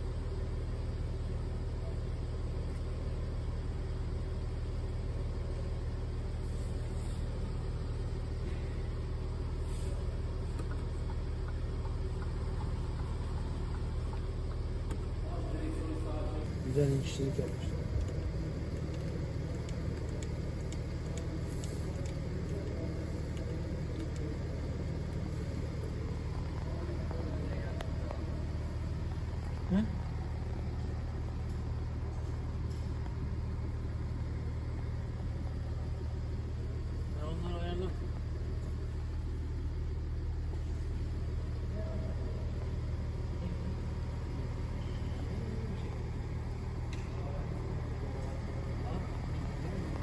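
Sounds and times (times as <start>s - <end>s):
diesel engine idling: 0.0s - 50.0s
faint clicks: 17.4s - 24.4s.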